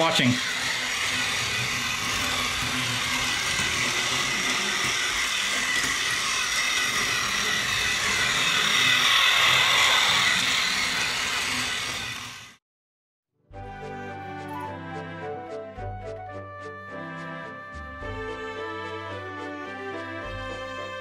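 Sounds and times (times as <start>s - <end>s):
toy train motor whirring: 0.0s - 12.6s, 18.0s - 21.0s.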